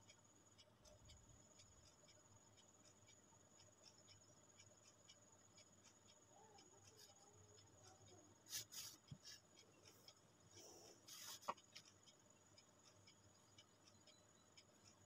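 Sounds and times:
pen scratching on paper: 8.5 - 9.4, 11.1 - 11.8
ruler sliding across paper: 8.5 - 9.4, 11.0 - 11.6.

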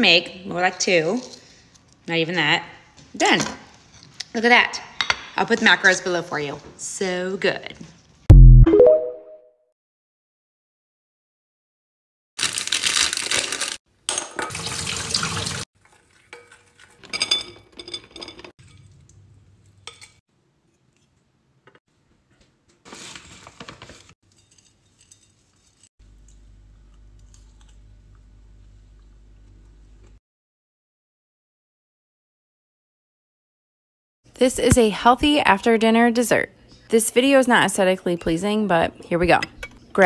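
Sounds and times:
metal spoon scraping glass bowl: 24.2 - 25.9.

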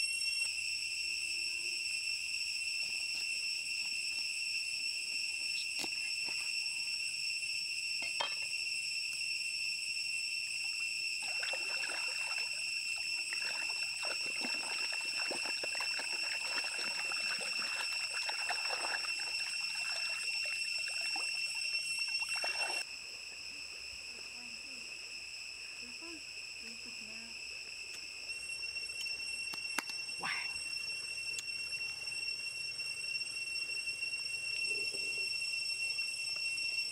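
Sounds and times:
insects droning: 0.0 - 36.9
water splashing and sloshing: 11.2 - 22.8.

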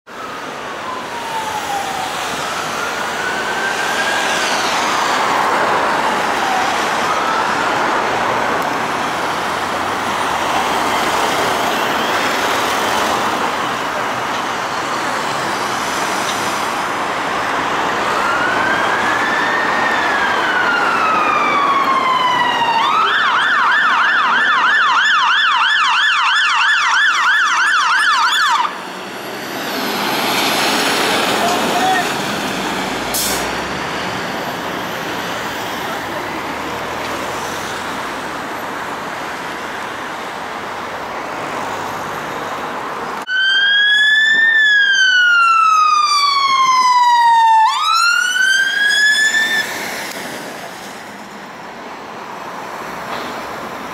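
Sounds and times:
siren yelp: 0.1 - 8.6, 17.8 - 28.8, 43.2 - 49.8
fire engine sirens wailing: 0.1 - 53.9
vehicle noise rushing: 0.1 - 53.9.

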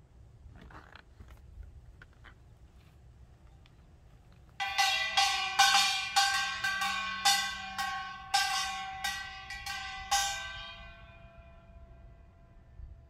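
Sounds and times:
small brass gong strikes: 4.6 - 12.8.

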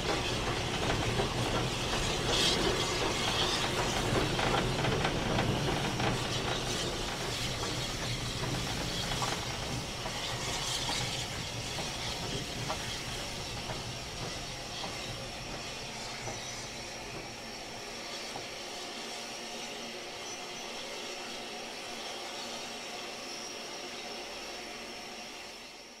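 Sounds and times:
steam hissing: 0.0 - 26.0.

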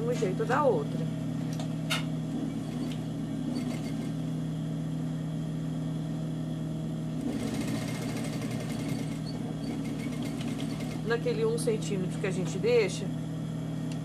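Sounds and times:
sewing machine motor hum: 2.3 - 4.3, 7.1 - 11.4
sewing machine stitching rattle: 2.5 - 4.2, 7.3 - 11.1.

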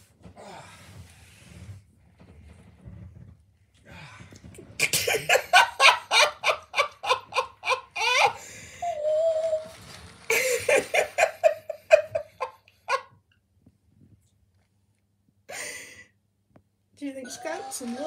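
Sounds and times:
hearty laughter: 5.0 - 8.4, 10.3 - 13.1.

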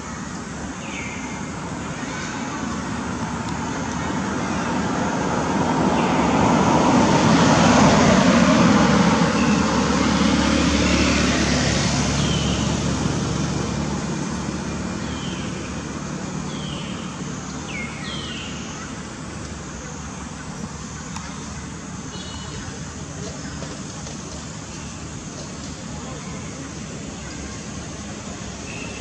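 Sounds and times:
vehicle passing: 2.6 - 17.6.

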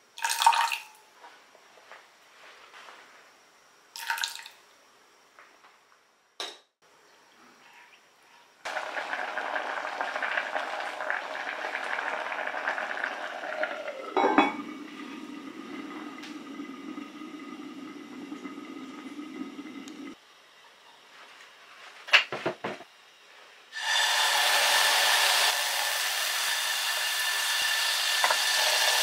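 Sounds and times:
liquid splashing into pot: 4.0 - 4.6
rice boiling bubbling: 8.6 - 20.2, 25.4 - 29.0.

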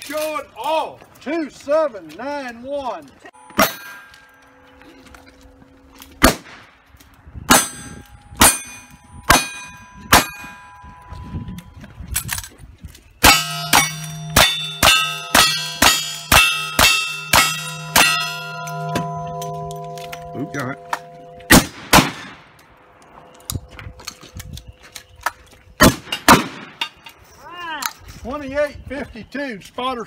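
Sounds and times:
steel plate clanging and ringing: 3.4 - 6.0, 7.5 - 11.7, 13.2 - 21.6
gunshots: 6.2 - 6.8, 21.5 - 22.6, 25.8 - 26.8.

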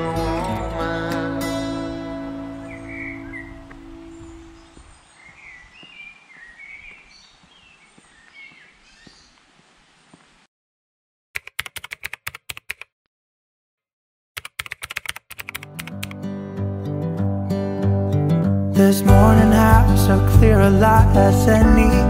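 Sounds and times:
guitar music: 0.0 - 4.6, 15.6 - 22.0
birds chirping: 0.0 - 10.5
keyboard typing clicks: 11.4 - 12.9, 14.4 - 16.2.

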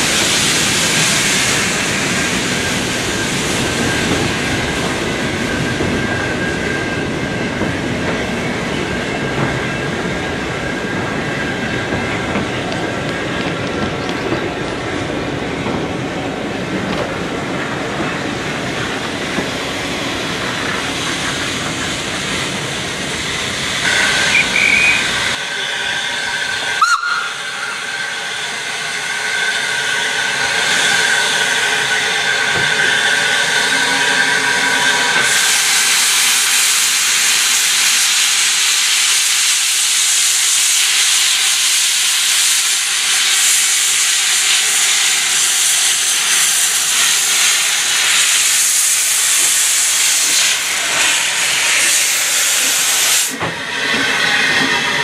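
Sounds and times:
railway carriages rolling: 0.0 - 55.0
steam locomotive hissing: 0.0 - 55.0
steam whistle: 23.8 - 25.2, 26.7 - 27.9.

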